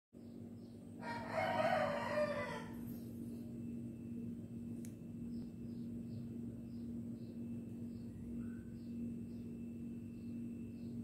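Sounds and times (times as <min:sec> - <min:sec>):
low hum: 0:00.2 - 0:11.0
rooster crowing: 0:01.0 - 0:03.0.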